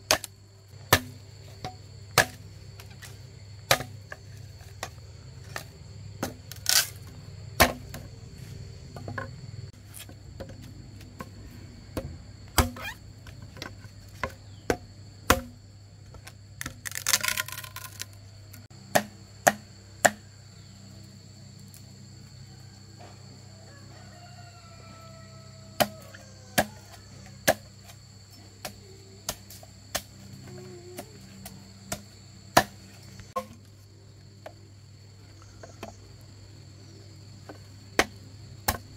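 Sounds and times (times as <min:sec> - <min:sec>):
sharp chopping strikes: 0:18.9 - 0:20.2.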